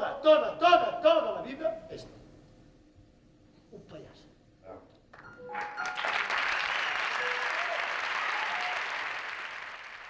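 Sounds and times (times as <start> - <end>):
audience applause: 5.5 - 10.0.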